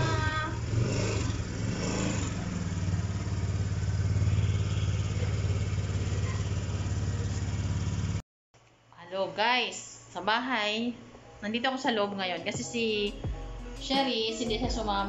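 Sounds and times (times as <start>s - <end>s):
scooter engine idling: 0.0s - 8.2s.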